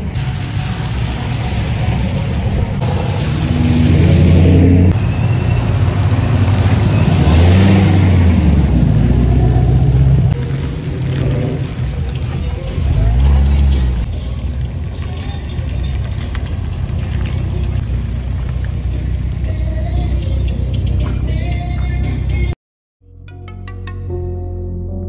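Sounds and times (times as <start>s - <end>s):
tyres hissing on wet asphalt: 0.0s - 8.9s, 9.8s - 20.1s
car exhaust rumble: 0.0s - 22.5s.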